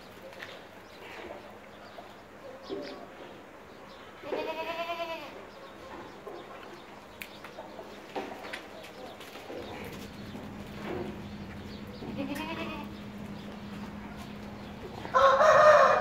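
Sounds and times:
goat kid bleating: 4.2 - 5.4, 12.0 - 13.0
hooves on concrete: 5.9 - 15.8.

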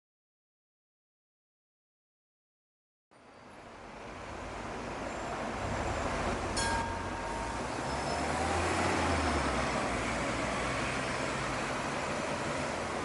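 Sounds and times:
road noise: 3.1 - 13.0
bus engines running: 3.2 - 13.0.

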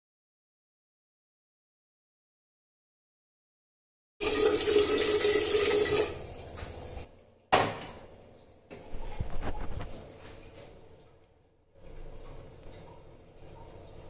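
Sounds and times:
water running into metal pot: 4.2 - 7.1.

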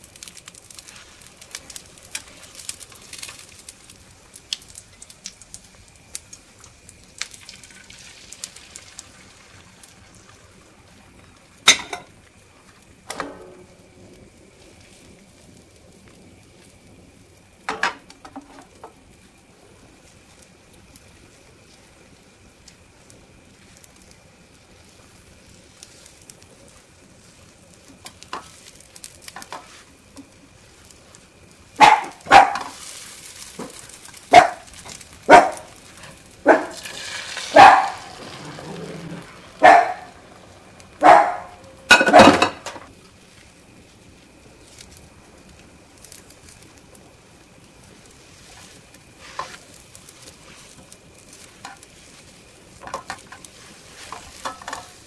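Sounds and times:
omelette sizzling in a pan: 0.0 - 55.0
dog barking: 31.8 - 32.7, 34.3 - 34.7, 35.3 - 35.7, 36.4 - 36.8, 37.5 - 38.1, 39.6 - 40.2, 41.0 - 42.4.

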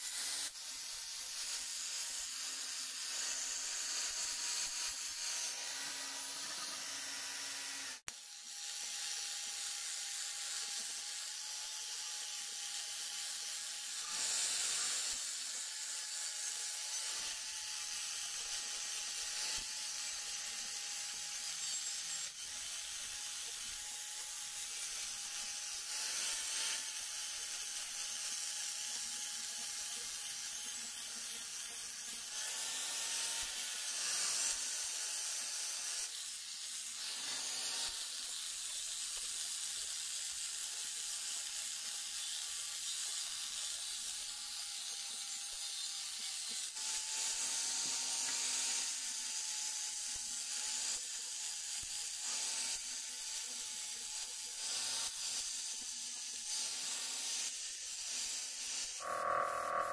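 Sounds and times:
angle grinder grinding metal: 0.0 - 59.9.

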